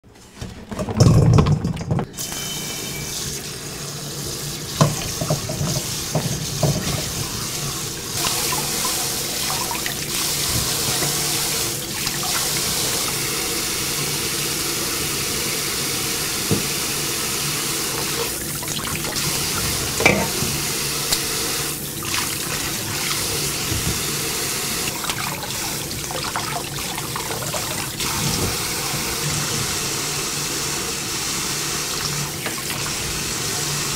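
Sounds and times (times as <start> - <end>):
tap water running into steel bowl: 2.2 - 33.9
knocks and clinks against bowl: 20.0 - 20.5.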